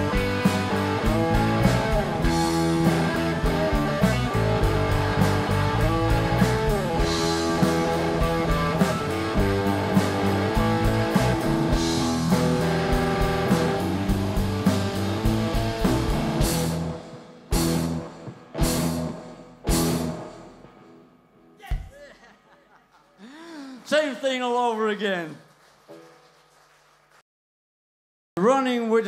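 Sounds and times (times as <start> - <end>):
drum kit steady beat: 0.0 - 19.1
electric guitar: 0.0 - 21.6
bass guitar: 0.0 - 21.9.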